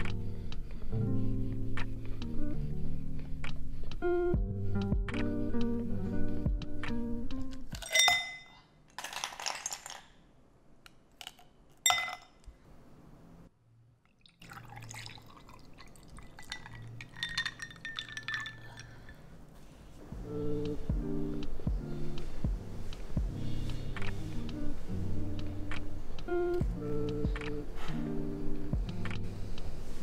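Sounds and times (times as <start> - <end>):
ice cubes clinking in glass: 7.8 - 10.1, 11.2 - 12.3, 14.5 - 19.2
milk pouring over ice: 9.0 - 10.1, 14.2 - 19.2.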